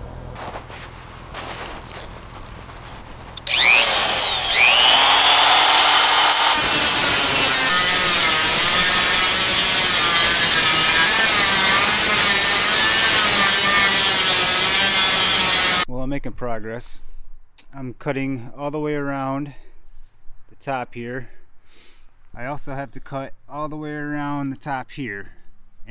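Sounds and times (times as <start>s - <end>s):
cut-off tool whining: 3.4s - 15.8s
disc grinding steel drum: 3.5s - 15.8s.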